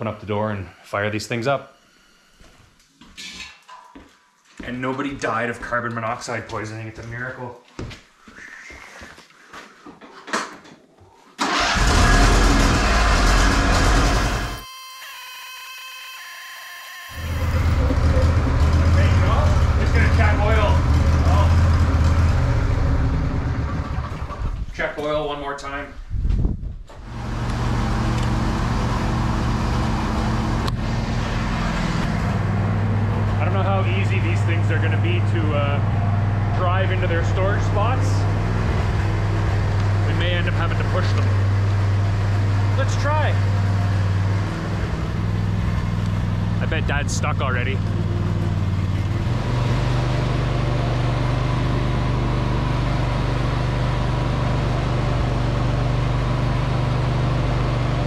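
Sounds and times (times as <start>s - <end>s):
mower engine idling: 11.4s - 14.6s, 17.1s - 24.7s, 27.1s - 42.8s, 43.4s - 58.0s.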